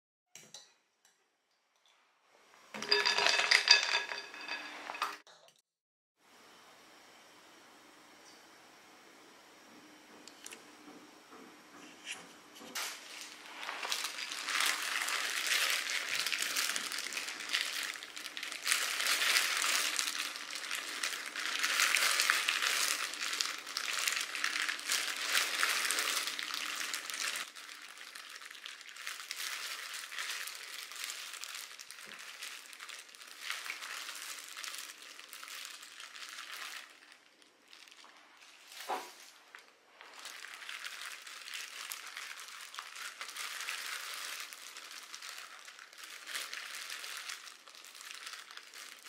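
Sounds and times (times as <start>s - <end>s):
plastic gloves crinkling: 12.8s - 49.0s
wet rustling: 13.0s - 49.0s.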